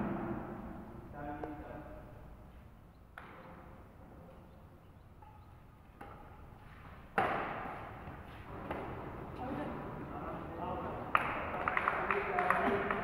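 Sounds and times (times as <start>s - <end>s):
rackets hitting shuttlecock: 3.1s - 3.7s, 5.2s - 9.0s.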